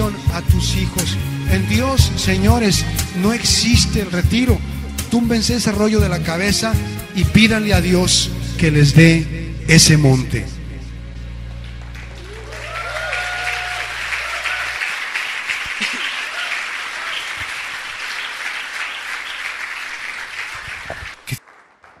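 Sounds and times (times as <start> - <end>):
congregation applauding: 3.0 - 4.3, 11.5 - 22.0
voices rising over clapping: 11.8 - 22.0.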